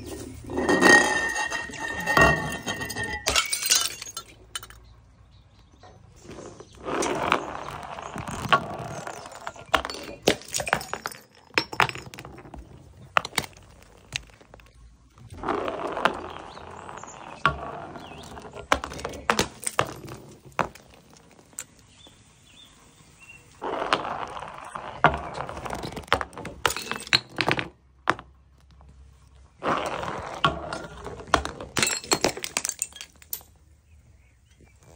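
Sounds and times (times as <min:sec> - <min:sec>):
glass bottles shattering on stone: 0:00.0 - 0:04.9, 0:07.0 - 0:14.6, 0:17.1 - 0:21.8, 0:24.3 - 0:27.7, 0:30.4 - 0:33.6
glass clinks and knocks: 0:00.4 - 0:04.8, 0:08.9 - 0:12.4, 0:26.6 - 0:27.5, 0:31.8 - 0:33.6.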